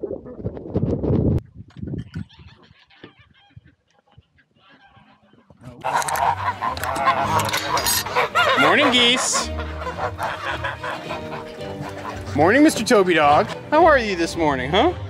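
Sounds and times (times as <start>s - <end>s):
geese honking: 2.1s - 14.8s.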